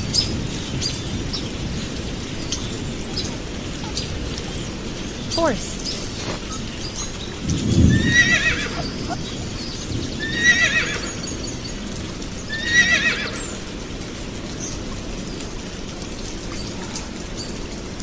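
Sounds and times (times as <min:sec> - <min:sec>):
horse whinnying: 0:07.9 - 0:09.3, 0:10.2 - 0:11.2, 0:12.5 - 0:13.4.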